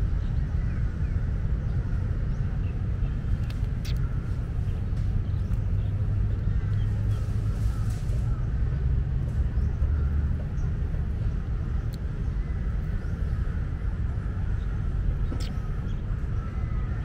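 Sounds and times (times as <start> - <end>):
low outdoor rumble: 0.0 - 17.0
soft clicks: 3.4 - 4.1.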